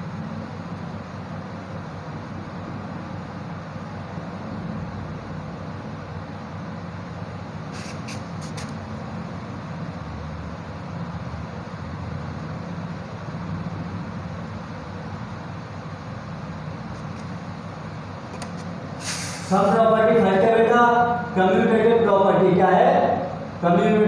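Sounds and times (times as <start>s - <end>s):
background rumble and hiss: 0.0s - 24.0s
marker writing on whiteboard: 7.7s - 8.8s.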